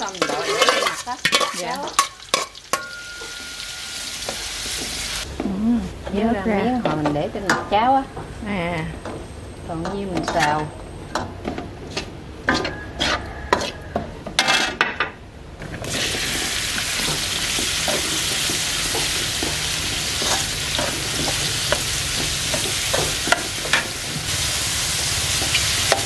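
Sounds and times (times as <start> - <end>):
metal spatula scraping wok: 0.0 - 4.7, 9.8 - 10.7, 11.8 - 14.8, 15.8 - 26.0
mushrooms sizzling in hot oil: 0.0 - 5.3, 15.8 - 26.0.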